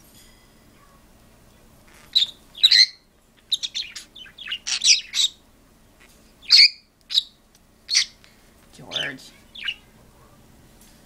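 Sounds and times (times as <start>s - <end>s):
birds chirping and squawking: 1.9s - 10.4s.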